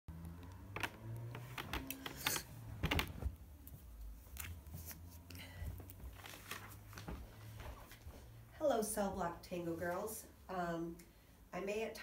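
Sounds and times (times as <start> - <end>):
person moving past: 0.8 - 8.4.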